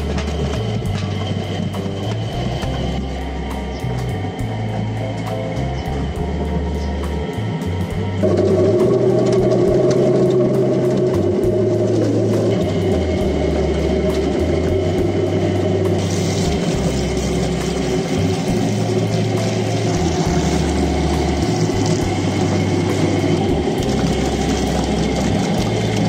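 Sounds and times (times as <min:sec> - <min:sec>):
potato peeling machine churning: 0:00.0 - 0:26.0
water pouring: 0:08.2 - 0:26.0.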